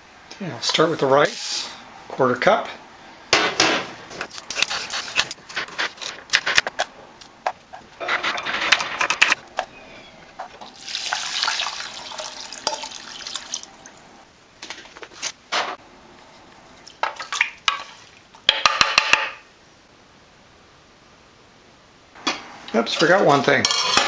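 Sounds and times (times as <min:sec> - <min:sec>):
water pouring into a pot: 0:10.7 - 0:13.9.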